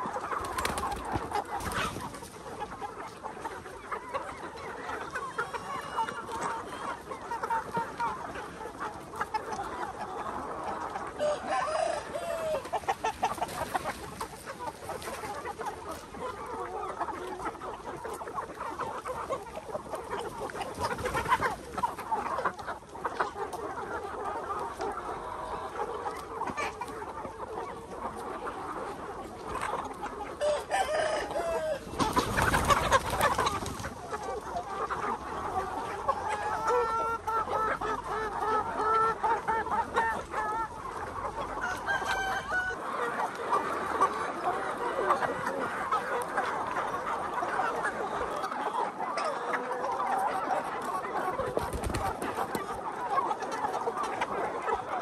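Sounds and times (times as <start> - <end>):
chickens clucking: 0.0 - 55.0
roosters crowing: 11.2 - 12.7, 30.4 - 32.2, 41.5 - 42.8.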